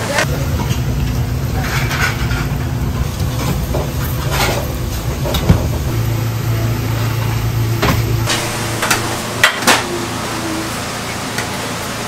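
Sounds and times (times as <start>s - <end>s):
kitchen equipment rumble: 0.0s - 12.0s.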